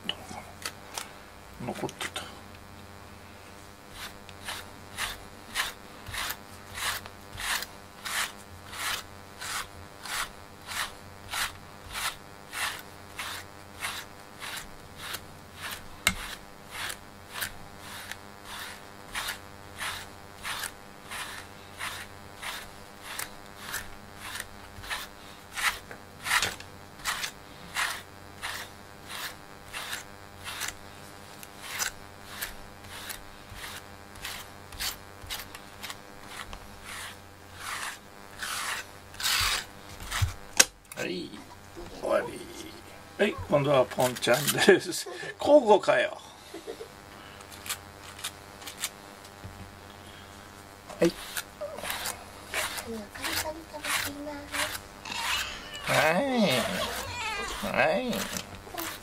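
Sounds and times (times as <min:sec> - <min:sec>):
brush stroking cat fur: 0:03.7 - 0:40.4, 0:43.2 - 0:44.9, 0:50.9 - 0:59.0.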